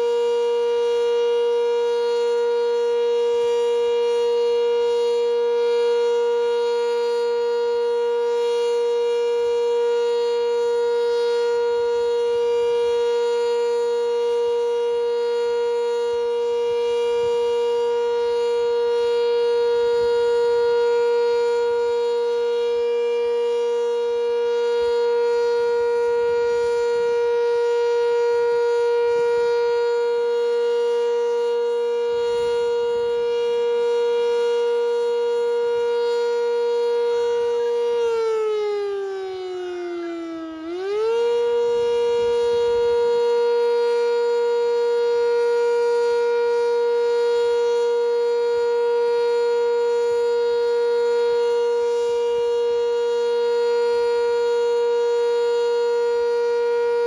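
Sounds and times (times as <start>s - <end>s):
warning siren steady tone: 0.0s - 57.0s.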